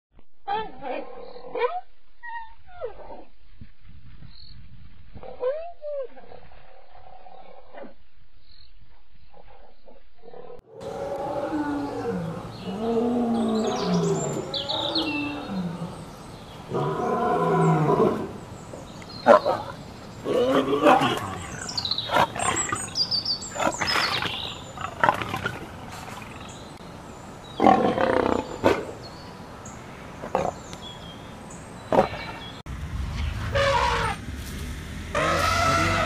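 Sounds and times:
lioness calling: 35.1 - 36.0.

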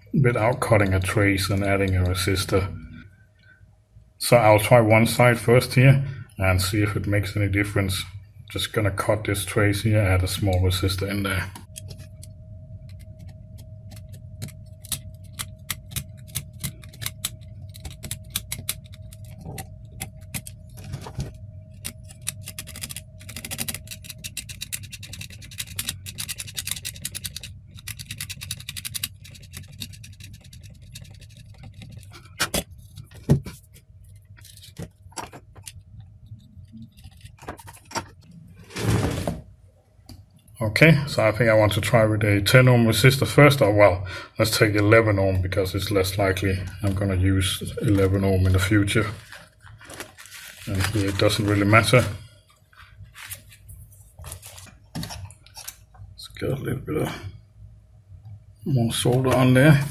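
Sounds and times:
faint steady tone: 0.0 - 26.0
low hum: 0.0 - 59.9.

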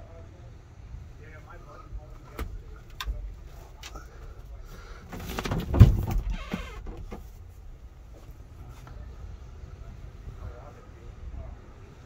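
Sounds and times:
things handled inside a car: 1.8 - 9.2
heavy thump: 5.1 - 7.3.

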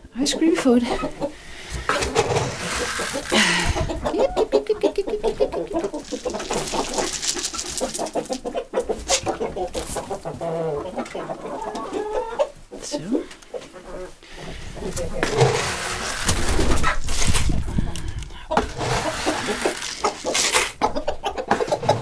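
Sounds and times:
chickens clucking: 0.3 - 22.0
feed scooped from plastic barrel: 1.7 - 4.0, 15.2 - 17.6, 18.6 - 20.8
grain rustling onto straw: 1.9 - 4.0, 5.8 - 10.1, 15.2 - 17.8, 18.6 - 20.8.

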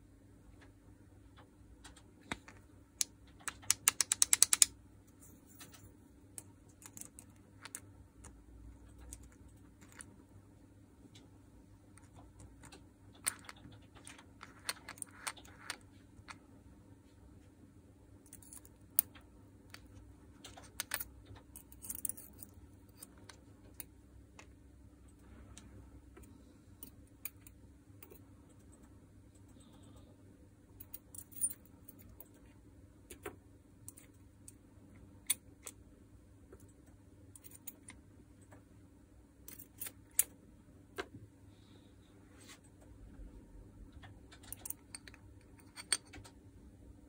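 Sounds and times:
faint steady hum: 0.0 - 47.0
metal gears clicking and clinking: 20.4 - 23.2.

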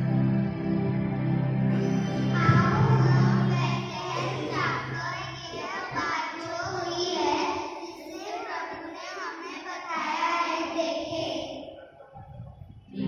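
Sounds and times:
ambient music with low tones: 0.0 - 7.7, 12.2 - 13.0
child speaking over loudspeaker: 1.9 - 12.5.

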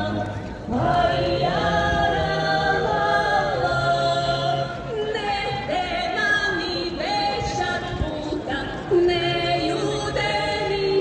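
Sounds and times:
group singing a cappella: 0.0 - 7.6.

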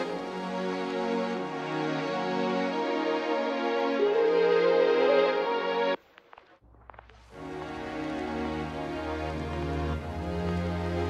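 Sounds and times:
soft slow background music: 7.3 - 11.0.

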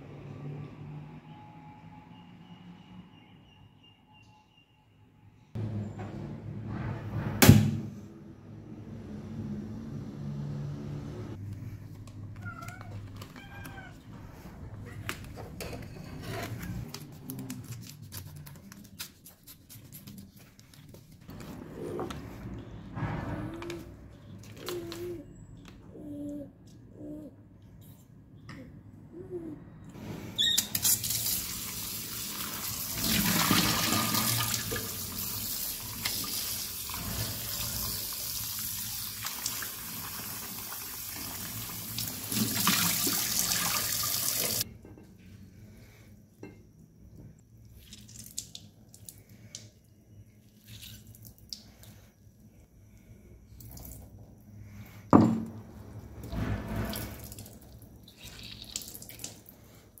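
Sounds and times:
water poured into sink: 30.7 - 44.6
wet squeezing of greens: 47.6 - 49.8, 50.4 - 52.0, 56.9 - 60.0.

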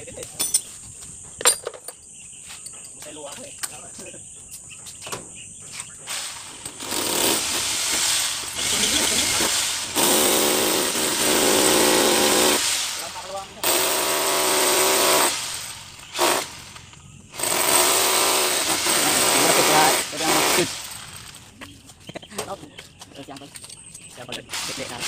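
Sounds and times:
electric drill boring into concrete: 6.1 - 21.4.

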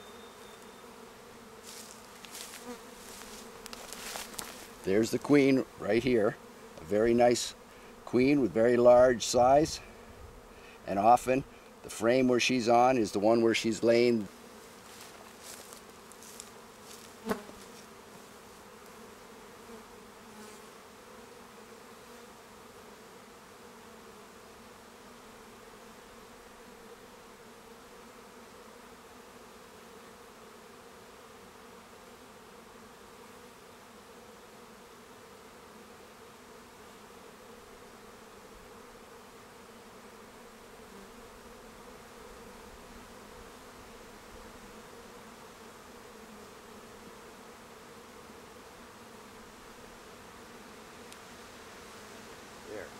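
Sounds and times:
honey bees buzzing: 0.0 - 52.9.

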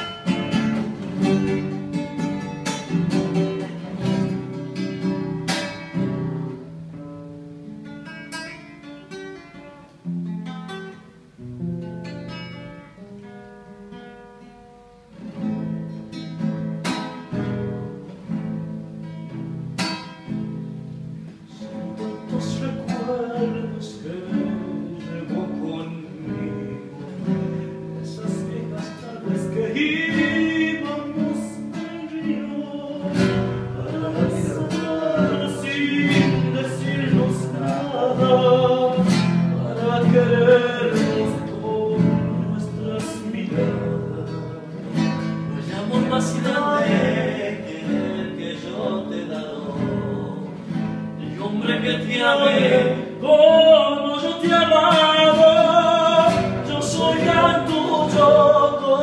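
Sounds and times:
acoustic guitar strumming: 0.0 - 59.0
men singing: 21.6 - 59.0.

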